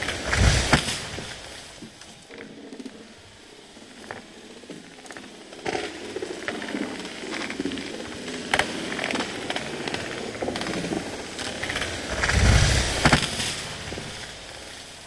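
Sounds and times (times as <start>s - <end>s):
tree cracking and branches snapping: 0.0s - 2.4s, 5.6s - 15.0s.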